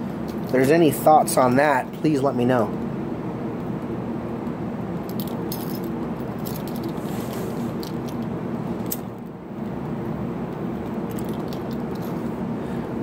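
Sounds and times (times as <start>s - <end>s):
keys jingling: 0.2s - 0.8s, 5.1s - 7.1s, 10.7s - 12.3s.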